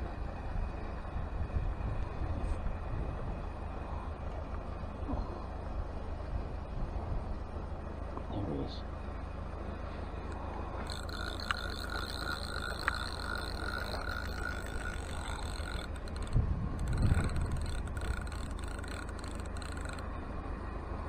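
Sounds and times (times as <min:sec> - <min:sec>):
sharp clicks: 0:10.3 - 0:20.1
fishing reel whirring: 0:10.3 - 0:20.4.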